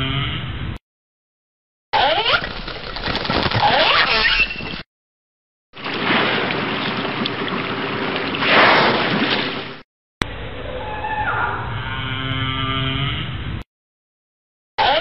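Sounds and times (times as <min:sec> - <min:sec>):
rushing water: 0:05.8 - 0:09.8.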